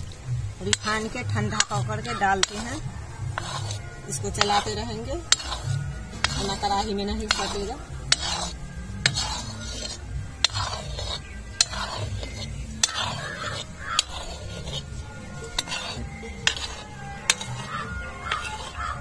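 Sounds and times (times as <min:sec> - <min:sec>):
ladle scraping pan: 0:00.0 - 0:19.0
metal ladle clinking against pan: 0:03.4 - 0:14.8, 0:15.4 - 0:19.0.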